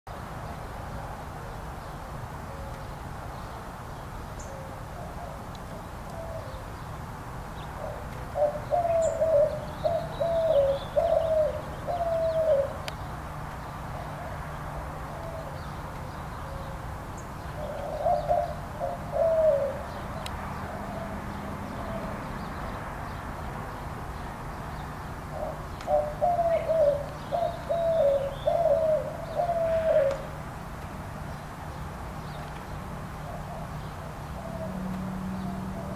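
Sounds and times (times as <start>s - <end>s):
dove cooing: 4.4s - 6.6s, 7.8s - 12.8s, 13.9s - 16.8s, 17.4s - 20.0s, 20.6s - 22.2s, 25.3s - 30.4s, 33.2s - 35.9s.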